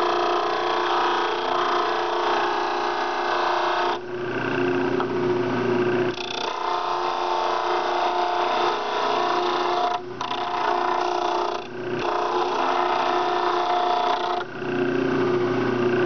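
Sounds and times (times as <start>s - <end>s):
electric motor humming: 0.0s - 5.1s, 5.8s - 16.0s.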